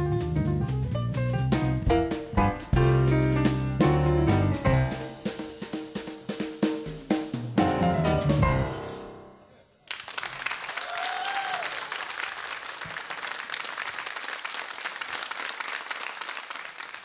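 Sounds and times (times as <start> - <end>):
piano trio and strings chord: 0.0 - 6.2, 6.8 - 9.5
audience applause: 9.8 - 17.0.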